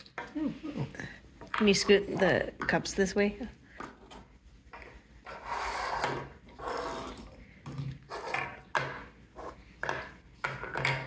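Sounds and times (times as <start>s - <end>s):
plastic cups knocking on table: 7.7s - 9.2s, 9.8s - 11.0s.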